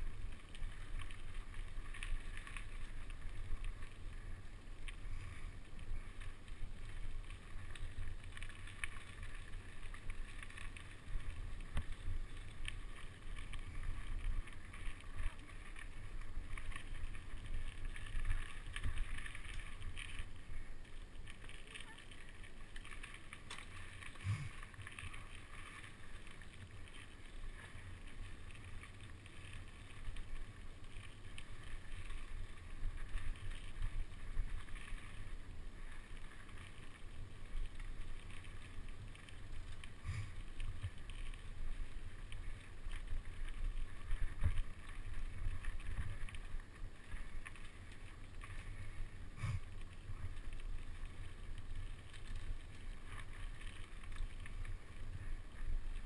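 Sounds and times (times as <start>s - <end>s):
bike tyres rumbling on dirt: 0.0s - 56.0s.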